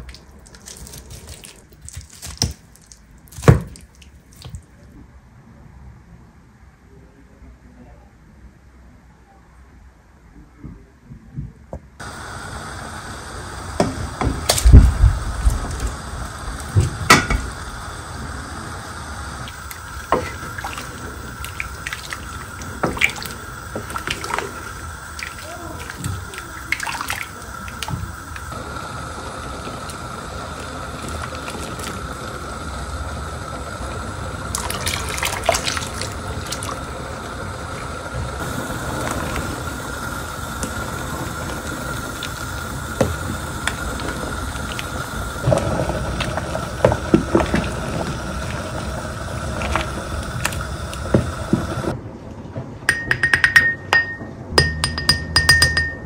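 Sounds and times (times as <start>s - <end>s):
liquid pouring and dripping: 0.0s - 4.8s, 19.4s - 28.5s, 34.4s - 51.9s
sharp knocks and clinks: 52.9s - 56.0s.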